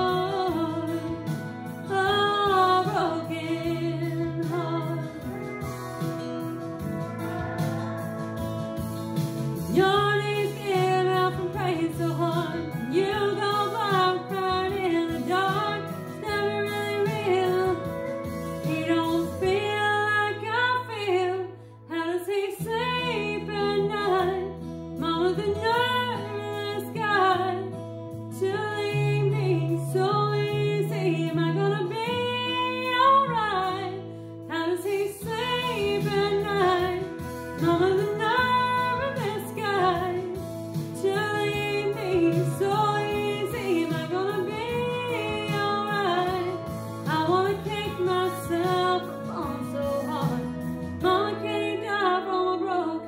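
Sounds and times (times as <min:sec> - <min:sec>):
instrumental backing: 0:00.0 - 0:53.0
woman singing country song: 0:00.0 - 0:53.0.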